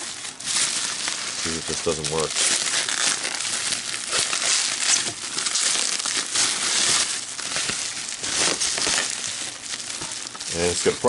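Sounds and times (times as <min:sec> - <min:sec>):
bubble wrap crinkling and crackling: 0:00.0 - 0:11.0.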